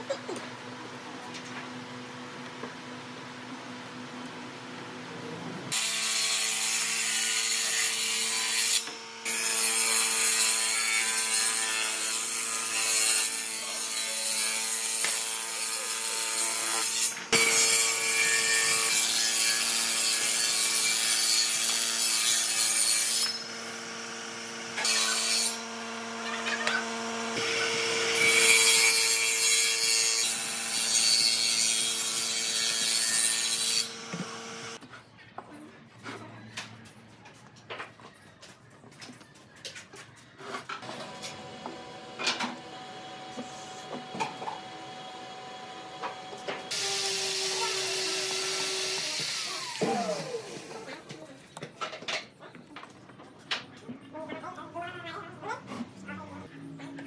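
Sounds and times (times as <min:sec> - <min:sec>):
power tool motor hum: 0:33.5 - 0:34.8.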